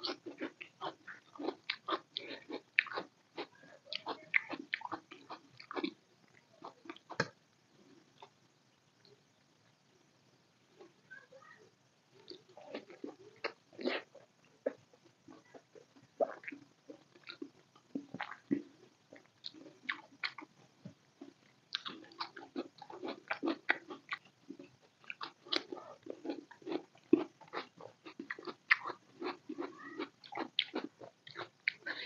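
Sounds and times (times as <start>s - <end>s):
person chewing food: 0.0s - 6.0s, 12.3s - 20.5s, 21.2s - 32.0s.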